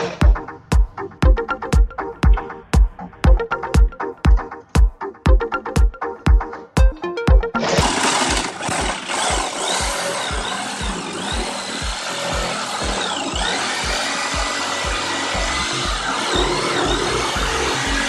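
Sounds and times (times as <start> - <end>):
background music with beat: 0.0 - 18.0
jigsaw cutting wood: 7.6 - 18.0.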